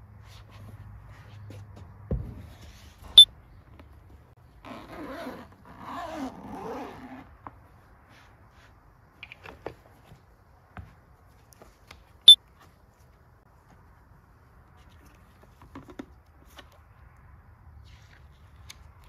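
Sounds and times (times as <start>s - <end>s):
zipper rasping open: 4.6s - 7.3s.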